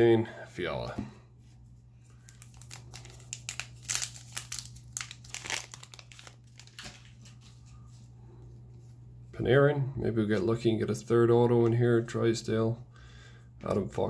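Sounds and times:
steady low hum: 0:00.0 - 0:14.0
foil wrapper crinkling: 0:02.1 - 0:07.7.

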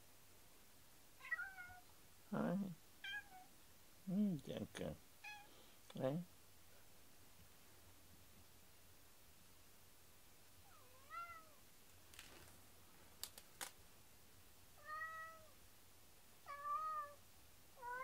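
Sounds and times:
cat meowing: 0:01.2 - 0:01.9, 0:03.0 - 0:03.5, 0:05.2 - 0:05.5, 0:10.6 - 0:11.6, 0:14.8 - 0:15.6, 0:16.4 - 0:17.2, 0:17.8 - 0:18.0.

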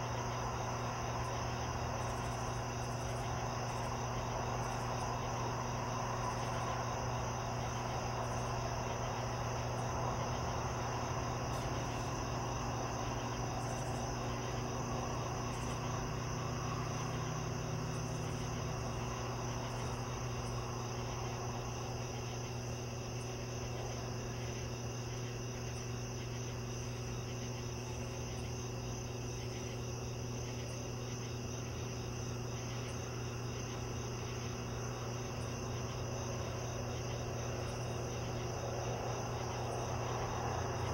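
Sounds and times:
crickets chirping: 0:00.0 - 0:40.9
low steady hum: 0:00.0 - 0:40.9.

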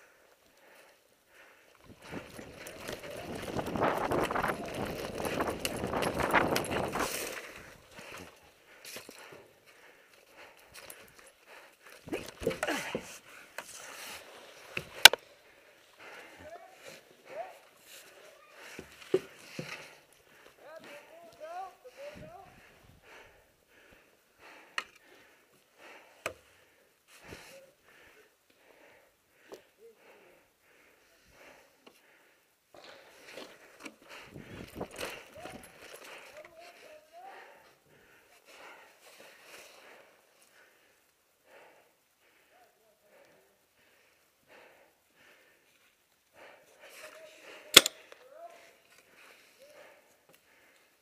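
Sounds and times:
rapid heavy breathing: 0:00.0 - 0:51.0
sharp snaps: 0:47.7 - 0:48.2.

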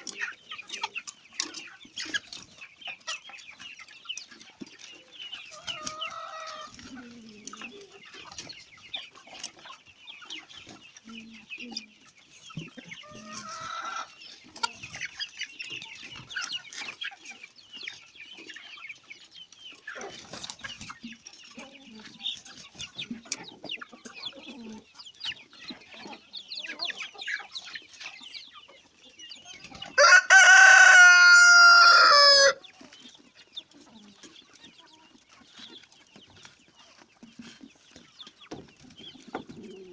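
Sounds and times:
chickens clucking: 0:00.0 - 0:39.9
rooster crowing: 0:30.0 - 0:32.6.

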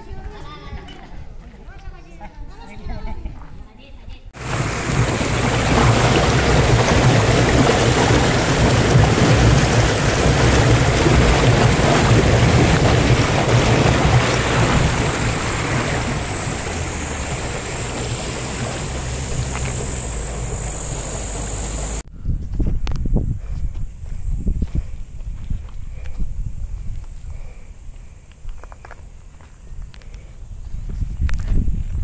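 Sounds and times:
water rushing through channel: 0:04.4 - 0:22.0.

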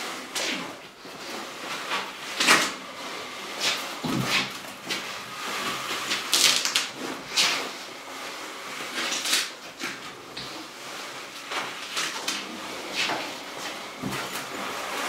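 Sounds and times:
plastic film crinkling: 0:06.1 - 0:07.0.

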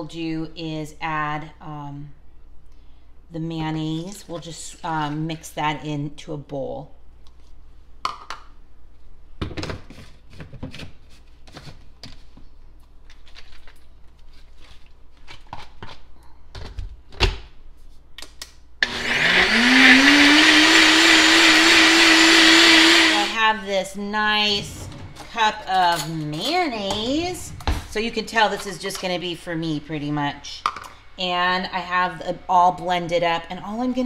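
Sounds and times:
blender motor whine: 0:18.8 - 0:23.4.

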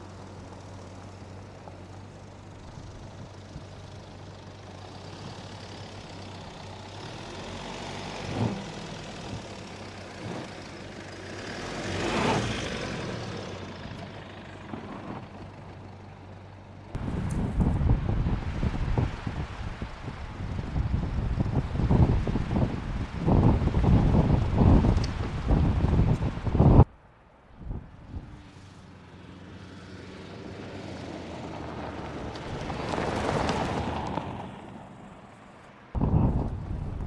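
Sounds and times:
diesel engine at low revs: 0:00.0 - 0:26.9, 0:36.0 - 0:37.0
tyres crunching on gravel: 0:31.6 - 0:35.0.

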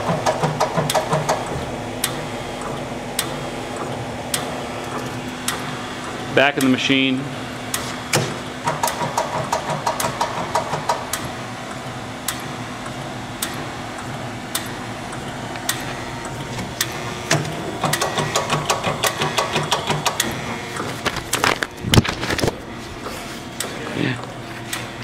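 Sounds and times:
fast mechanical clatter: 0:00.0 - 0:06.2, 0:08.6 - 0:11.2, 0:16.5 - 0:22.6
grinder machine hum: 0:00.0 - 0:25.0.

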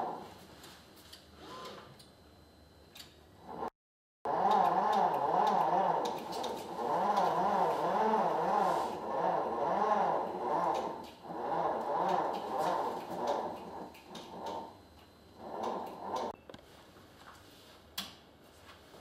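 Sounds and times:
electric motor hum wavering: 0:04.3 - 0:16.4.

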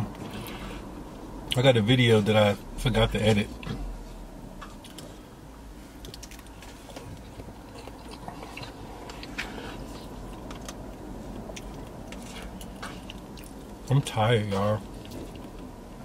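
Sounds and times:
chewing mouth noises: 0:06.0 - 0:13.8, 0:14.8 - 0:15.7.

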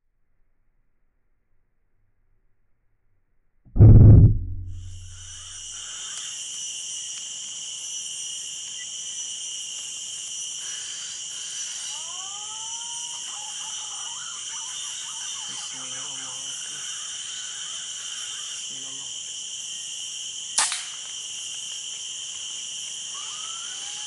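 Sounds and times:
shrill insect chorus: 0:04.8 - 0:24.0
rising whistled notes: 0:11.9 - 0:16.4, 0:23.2 - 0:24.0.

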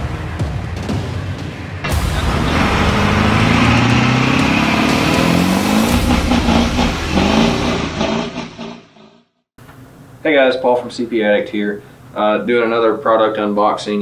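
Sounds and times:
vehicle engine revving: 0:00.0 - 0:09.0.

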